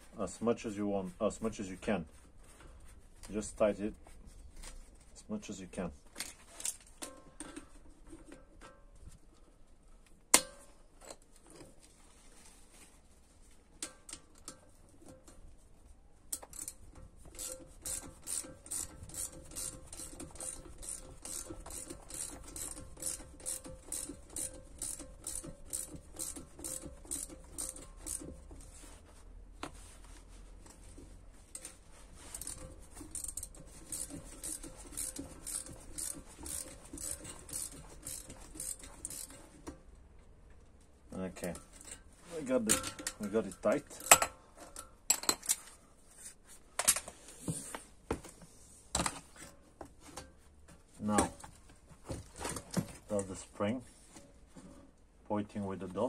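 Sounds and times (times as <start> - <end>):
ratchet wrench clicking: 16.4 - 28.4, 32.3 - 39.5.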